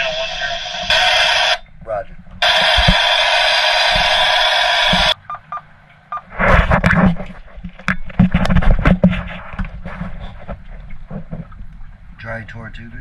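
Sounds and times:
loud irregular radio crackling: 0.0s - 1.6s, 2.4s - 5.2s
radio static hiss: 0.0s - 1.6s, 2.4s - 5.6s.

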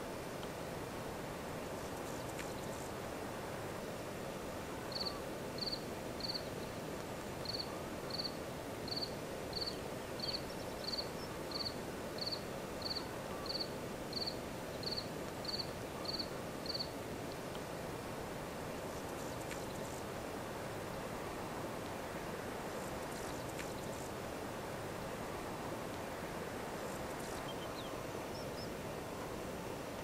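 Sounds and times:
low background noise: 0.0s - 30.0s
insect chirping: 1.6s - 4.0s, 4.7s - 17.0s, 18.8s - 28.8s.

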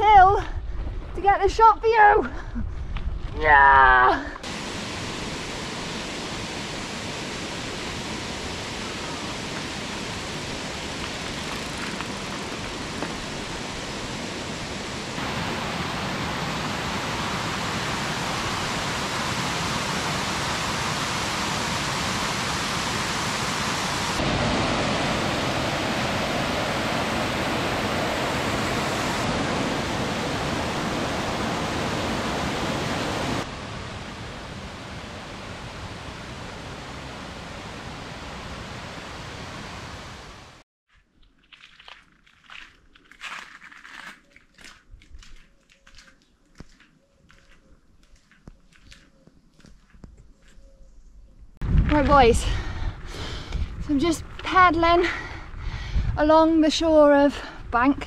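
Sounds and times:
steady rushing noise: 4.4s - 40.6s.

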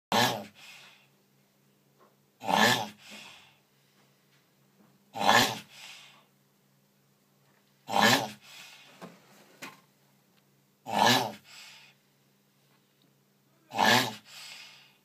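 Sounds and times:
tortoise grunting: 0.1s - 0.6s, 2.4s - 3.3s, 5.1s - 5.8s, 7.8s - 8.6s, 10.8s - 11.5s, 13.6s - 14.3s
soft breathy sound: 0.4s - 1.2s, 2.9s - 4.6s, 5.6s - 6.4s, 8.3s - 9.6s, 11.4s - 15.0s.

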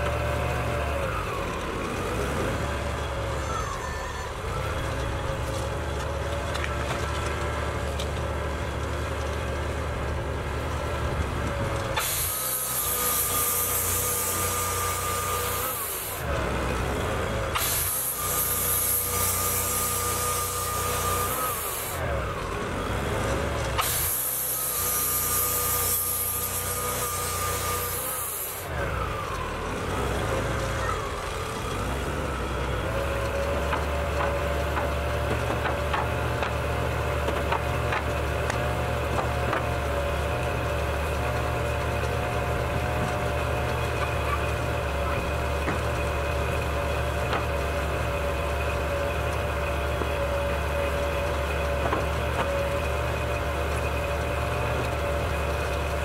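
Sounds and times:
band saw hissing and whining: 12.0s - 22.3s, 23.8s - 33.2s.

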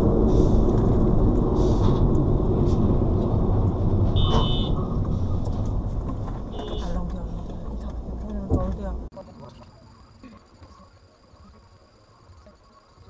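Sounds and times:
road and engine rumble: 0.0s - 9.6s
short electronic beep: 4.2s - 4.8s.

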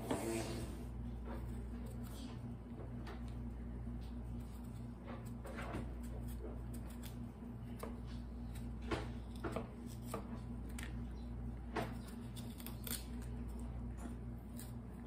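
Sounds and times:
knife scraping squash peel: 4.3s - 10.6s, 11.9s - 13.6s, 14.4s - 15.0s.

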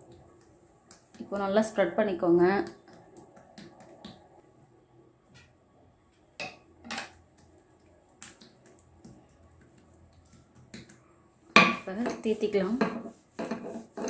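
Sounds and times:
hand rubbing oil on dough: 11.9s - 14.0s.

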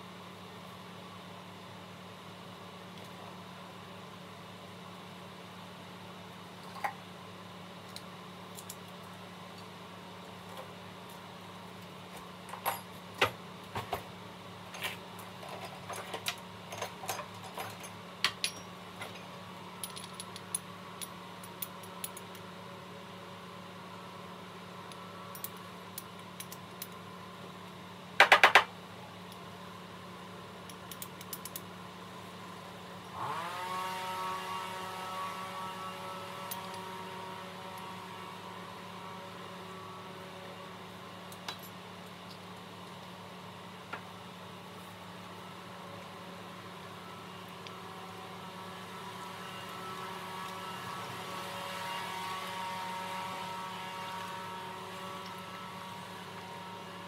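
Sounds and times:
constant low hum: 0.0s - 33.3s, 33.9s - 57.0s
whirring hum: 0.0s - 57.0s.

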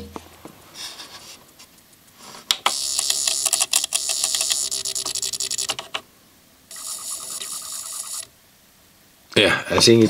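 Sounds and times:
fast ticking over a buzz: 1.8s - 6.0s, 6.7s - 8.4s
disc drive mechanism clicking: 2.5s - 6.0s.

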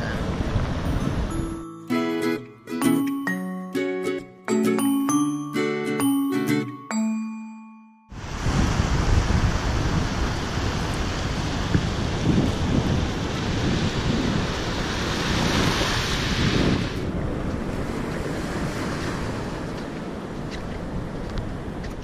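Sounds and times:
wind buffeting microphone: 0.0s - 1.4s, 8.2s - 22.0s
small waves breaking on beach: 8.2s - 21.8s.

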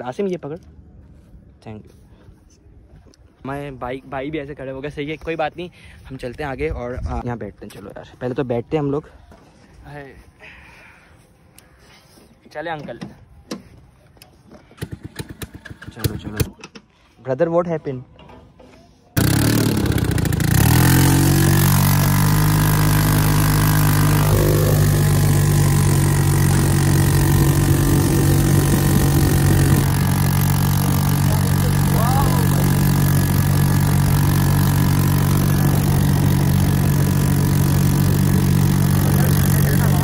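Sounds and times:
buggy engine revving: 19.2s - 40.0s.

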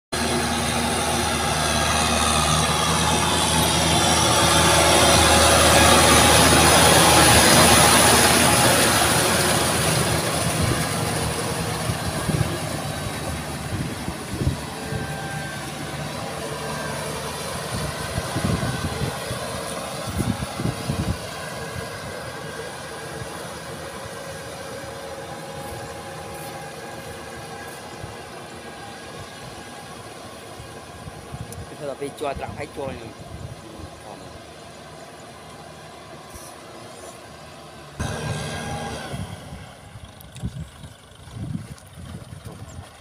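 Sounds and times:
tractor diesel engine under load: 0.1s - 43.0s.

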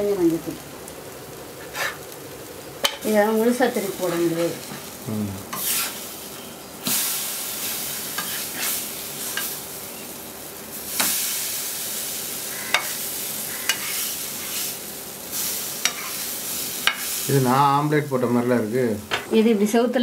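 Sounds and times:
batter sizzling on a pan: 0.0s - 20.0s
spatula clicking against pan: 12.7s - 12.9s.

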